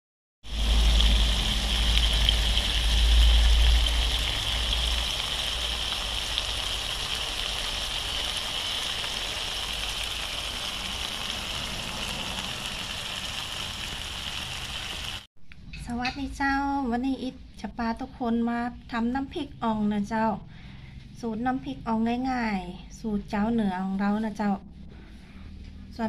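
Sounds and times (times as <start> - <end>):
low rumble: 0.5 - 6.3
sauce sizzling in a wok: 0.5 - 15.3.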